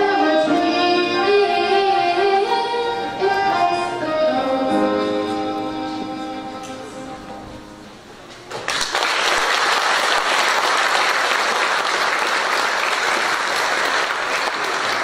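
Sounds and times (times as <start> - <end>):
audience applause: 8.5 - 15.0.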